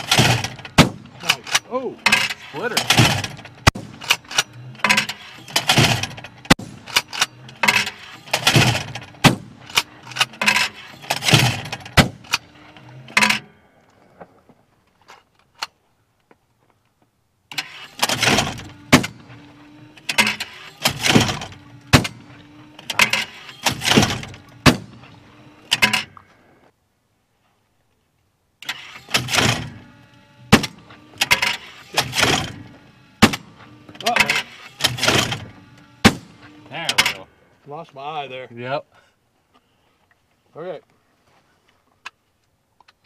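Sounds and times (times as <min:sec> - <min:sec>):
electric motor humming: 0:00.0 - 0:13.2, 0:17.5 - 0:25.8, 0:28.7 - 0:37.0
mechanical clatter: 0:00.0 - 0:13.5, 0:17.5 - 0:26.1, 0:28.6 - 0:37.2.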